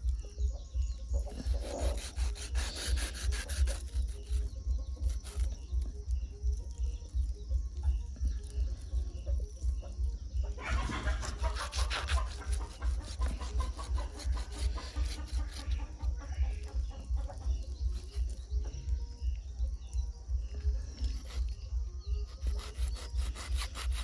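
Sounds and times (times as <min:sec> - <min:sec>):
bird calls: 0:00.0 - 0:24.0
knife cutting meat and bone: 0:01.3 - 0:05.6, 0:10.8 - 0:15.8, 0:21.0 - 0:21.5, 0:22.3 - 0:24.0.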